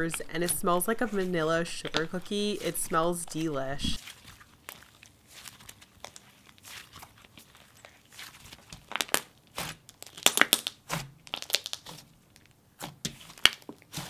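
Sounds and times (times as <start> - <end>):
hands squishing slime: 0.0 - 12.2
slime clicking pops and crackles: 8.7 - 12.0.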